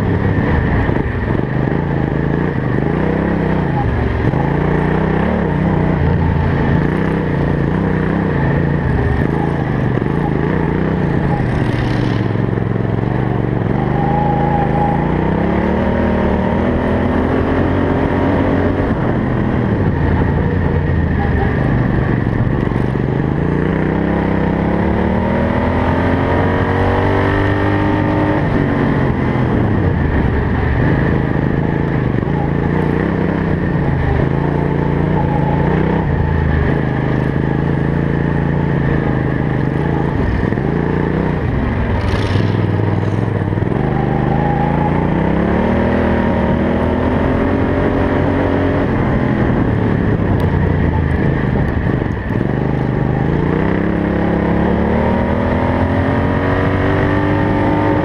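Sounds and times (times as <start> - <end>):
lawn mower engine revving: 40.0 - 43.7.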